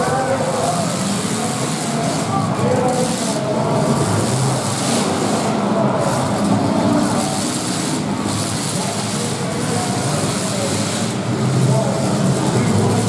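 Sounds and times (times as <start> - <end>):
car engines running: 0.0 - 13.0.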